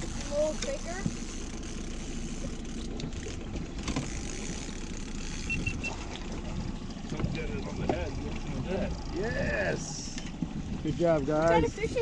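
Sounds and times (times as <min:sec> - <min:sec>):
outboard motor idling: 0:00.0 - 0:12.0
short high beeps: 0:05.4 - 0:06.0.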